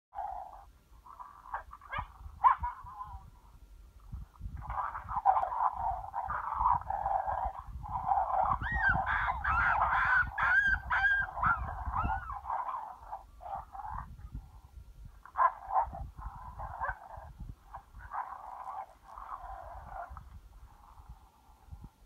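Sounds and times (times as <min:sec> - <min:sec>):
wind rumbling on microphone: 0:00.2 - 0:22.0
wailing yelping animal cries: 0:08.4 - 0:13.0.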